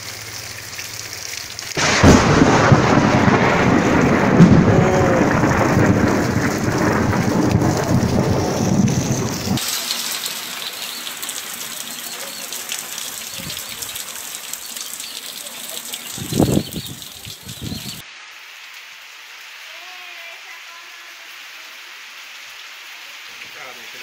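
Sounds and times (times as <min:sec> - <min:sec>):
rain falling: 0:00.0 - 0:24.0
thunder rumbling: 0:01.8 - 0:09.6.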